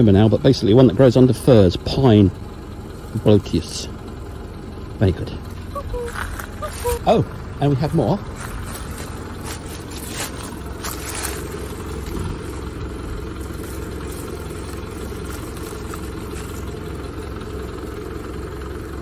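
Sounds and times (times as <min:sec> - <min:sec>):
low rumble: 0:05.3 - 0:17.8
dry leaves rustling and crackling: 0:05.7 - 0:07.0, 0:08.2 - 0:17.6.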